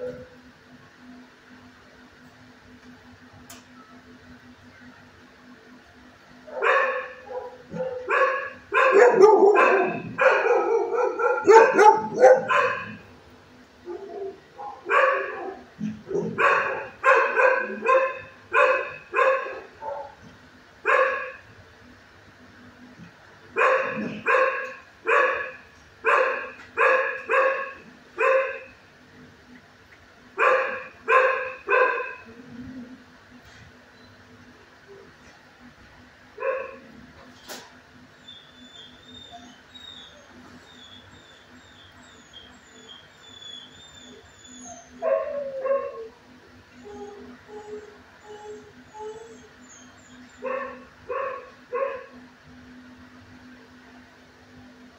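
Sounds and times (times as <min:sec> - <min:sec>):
dog barking: 0:06.5 - 0:13.0, 0:13.9 - 0:20.2, 0:20.9 - 0:21.4, 0:23.6 - 0:28.7, 0:30.4 - 0:32.2, 0:36.4 - 0:36.8, 0:45.0 - 0:46.1, 0:50.4 - 0:52.2.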